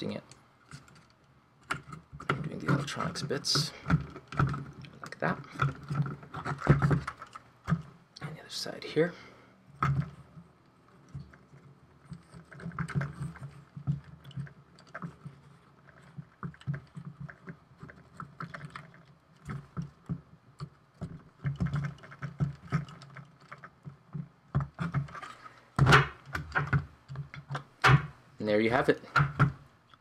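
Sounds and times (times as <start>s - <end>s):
rubber bands stretching: 1.7s - 7.9s
hands tapping wooden parts: 11.1s - 28.2s, 29.0s - 30.0s
wooden knocks: 21.0s - 28.2s.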